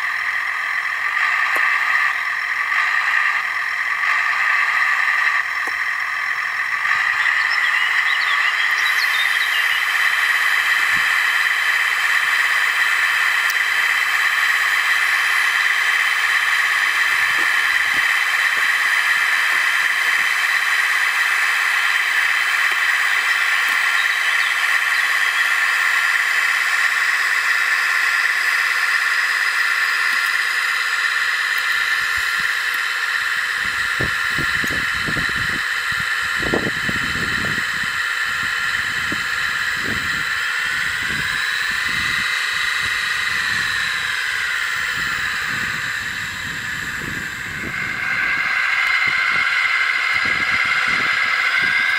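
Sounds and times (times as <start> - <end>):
model tractor motor whining: 0.0 - 51.9.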